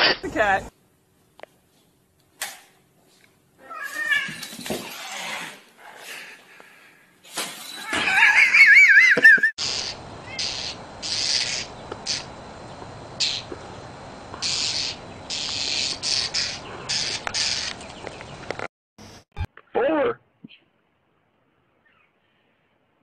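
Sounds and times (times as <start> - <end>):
cat yowling: 3.6 - 4.4
background hiss: 9.6 - 17.7.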